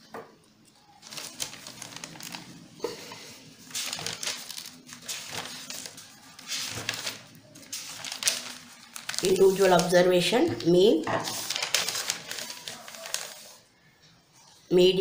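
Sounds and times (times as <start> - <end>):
paper pages rustling and flipping: 1.0 - 13.7.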